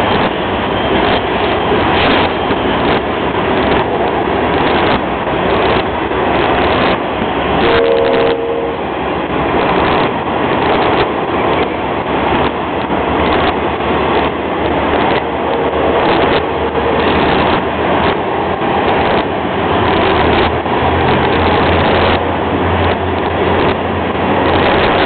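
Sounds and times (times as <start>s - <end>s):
train wheels rumbling on rails: 0.0s - 25.0s
wheels clacking over rail joints: 0.0s - 25.0s
steady tone: 6.0s - 9.8s, 12.5s - 20.0s.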